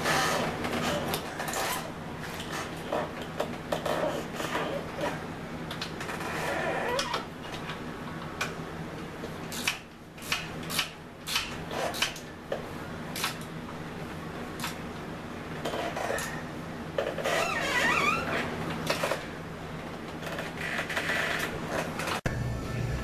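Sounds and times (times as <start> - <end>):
low hum: 22.2 - 23.0.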